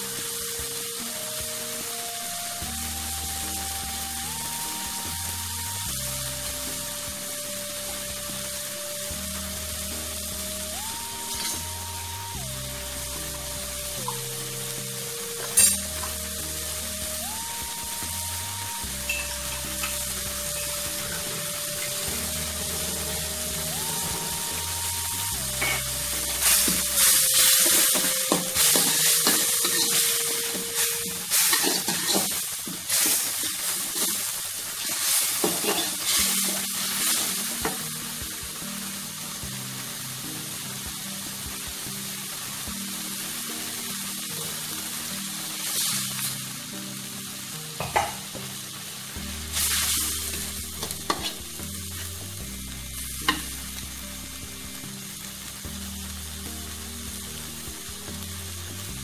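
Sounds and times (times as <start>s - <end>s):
food sizzling in a pan: 0.0s - 59.0s
utensil scraping a pan: 25.6s - 33.3s, 35.0s - 37.3s, 49.6s - 51.5s
knocks on a pan: 47.8s - 48.2s.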